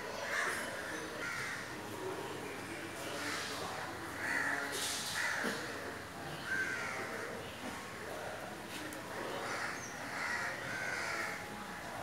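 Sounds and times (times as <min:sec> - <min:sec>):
birds harsh calls: 0:09.4 - 0:11.4.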